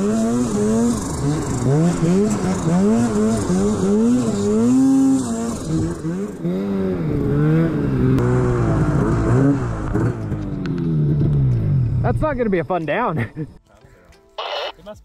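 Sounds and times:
snowmobile engine revving: 0:00.0 - 0:10.2.

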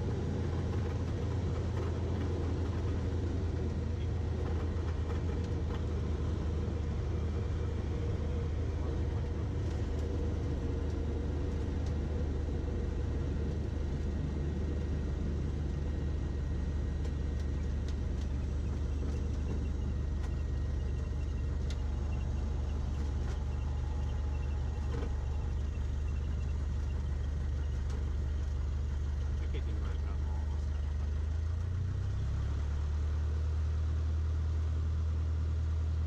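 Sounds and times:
propeller plane engine idling: 0:00.0 - 0:36.0.

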